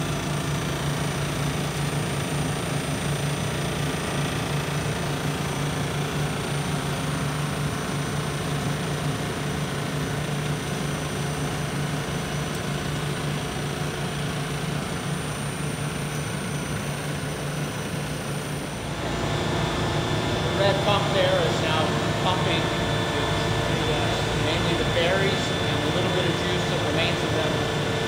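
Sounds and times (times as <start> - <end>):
grape destemmer machine droning: 0.0 - 28.0.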